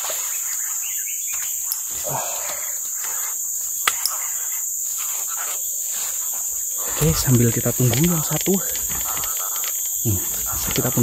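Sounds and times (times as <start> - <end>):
insects buzzing: 0.0 - 11.0
sharp clicks: 6.9 - 11.0.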